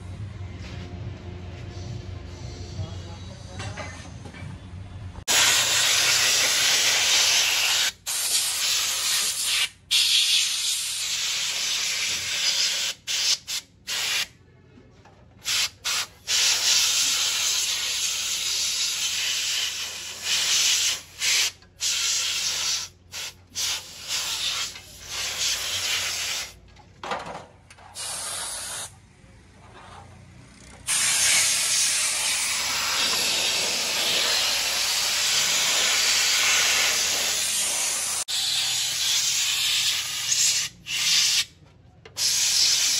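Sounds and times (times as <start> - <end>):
air spray gun hissing: 5.3 - 14.3, 15.5 - 26.6, 28.0 - 28.9, 30.9 - 41.5, 42.2 - 42.9.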